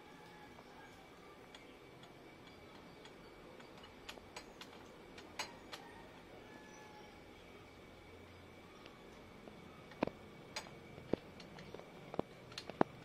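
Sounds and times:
faint handling clicks: 1.5s - 5.9s.

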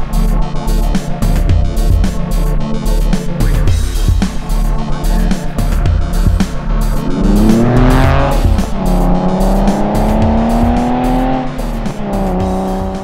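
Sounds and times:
music with steady beat: 0.0s - 13.0s
car engine accelerating past: 6.9s - 13.0s.

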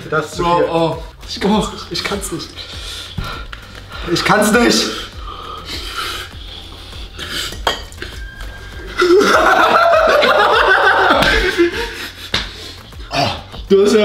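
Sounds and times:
cutlery clinking against plates: 7.5s - 8.2s
man laughing loudly: 9.0s - 12.4s.

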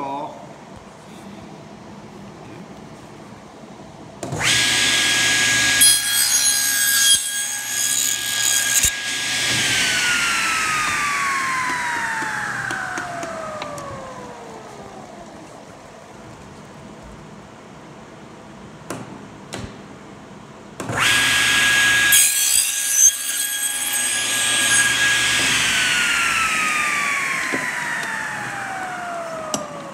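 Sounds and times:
table saw cutting wood: 4.3s - 14.5s, 20.9s - 29.9s
saw blade whine winding down: 4.4s - 15.2s, 21.0s - 29.9s.

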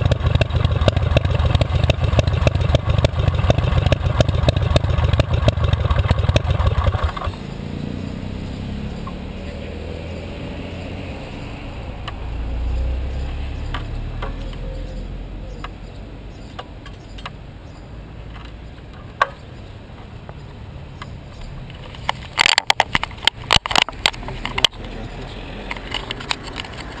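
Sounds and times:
scattered clicks: 21.7s - 27.0s.

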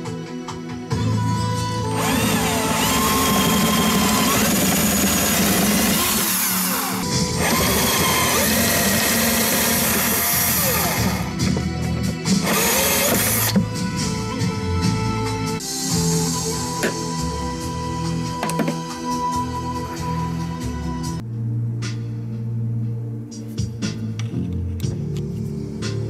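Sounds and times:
background music: 0.0s - 26.0s
cordless drill boring: 1.9s - 11.6s, 12.3s - 13.7s.

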